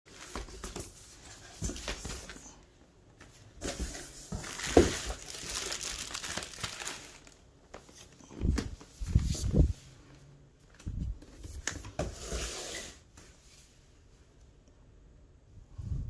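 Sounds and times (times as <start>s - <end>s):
packaging crinkling and rustling: 0.1s - 2.6s, 3.6s - 9.7s.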